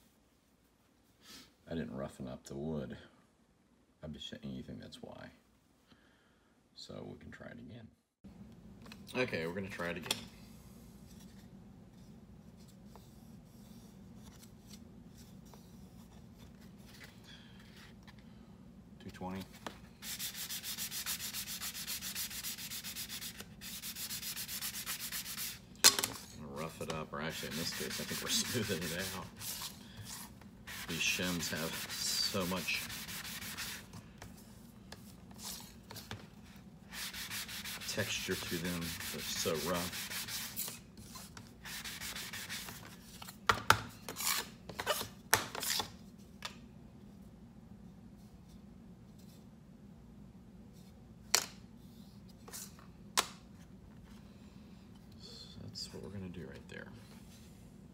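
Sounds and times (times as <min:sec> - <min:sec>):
sanding block on wood: 0:20.0 - 0:25.6, 0:27.2 - 0:29.7, 0:30.7 - 0:33.9, 0:36.9 - 0:40.7, 0:41.6 - 0:42.8.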